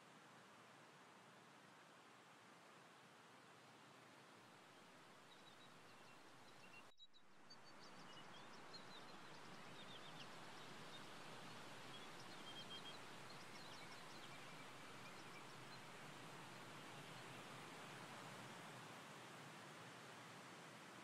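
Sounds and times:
small bird chirps and trills: 5.2 - 17.4.

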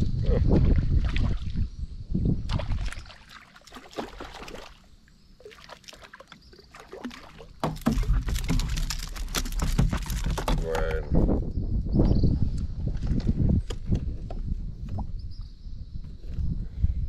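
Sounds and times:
clicks and knocks from rod and reel: 7.6 - 11.0.

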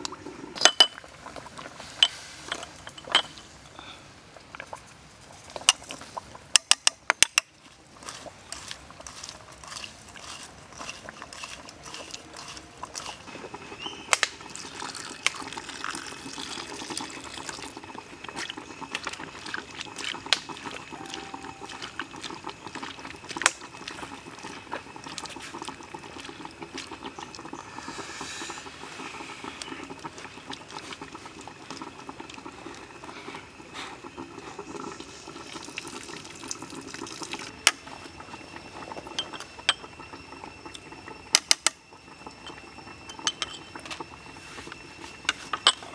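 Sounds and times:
spoon clinking ceramic cup: 2.0 - 3.4, 39.2 - 39.8, 42.4 - 43.7, 45.5 - 45.9.

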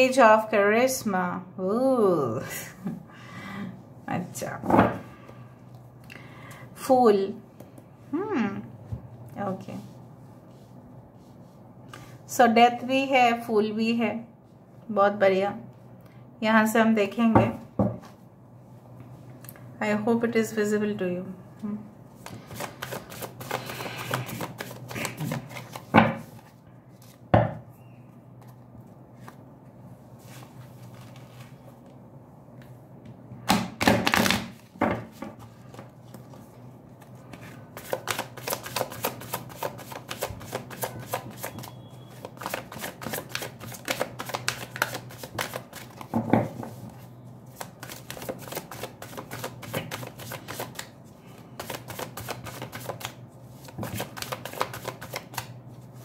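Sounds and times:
faint steady hum: 0.0 - 56.0
cards being shuffled: 22.2 - 27.2, 30.2 - 32.0, 35.4 - 46.8, 47.5 - 55.6.

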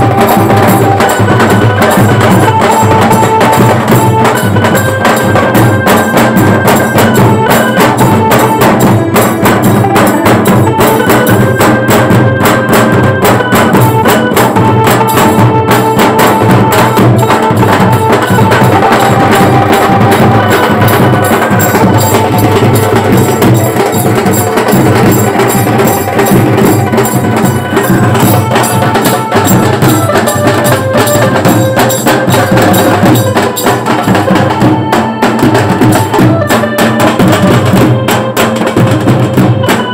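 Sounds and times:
fast steady drumming: 0.0 - 39.9
melody of held notes: 0.0 - 39.9.

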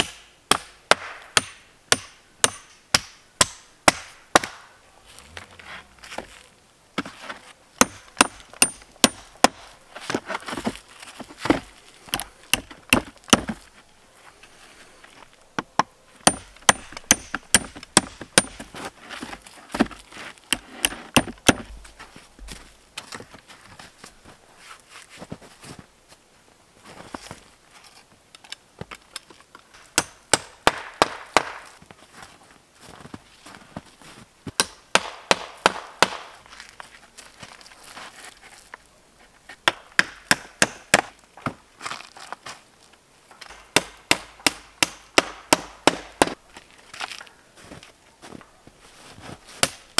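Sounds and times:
hatchet driving nails into wood: 0.0 - 4.6, 7.8 - 9.6, 15.7 - 18.6.

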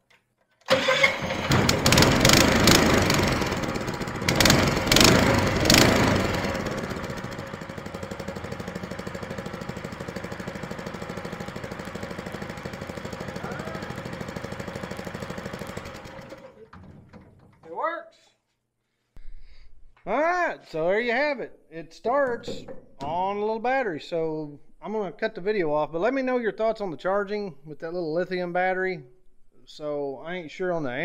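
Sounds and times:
small four-stroke engine revving and idling: 0.7 - 16.6.

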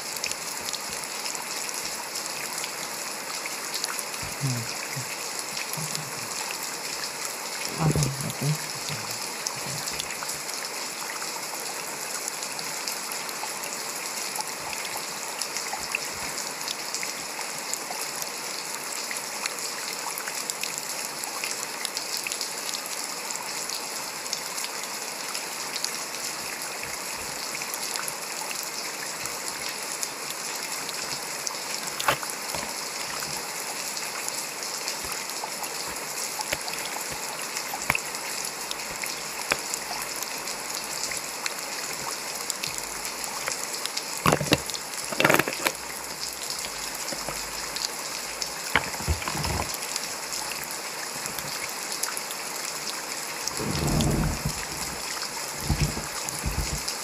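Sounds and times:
rain falling: 0.0 - 57.0
sharp drips: 0.2 - 17.0, 25.8 - 52.2.

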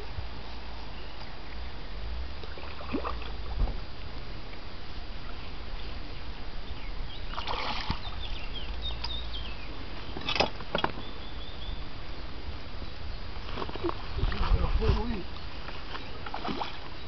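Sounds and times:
wind rumble on microphone: 0.0 - 17.0
bird chirping: 5.2 - 14.0.

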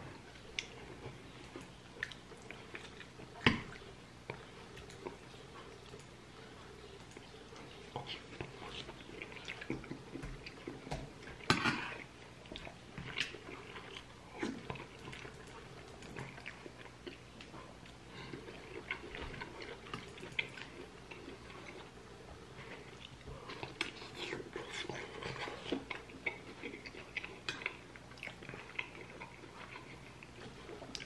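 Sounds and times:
man chewing meat: 0.0 - 31.0.

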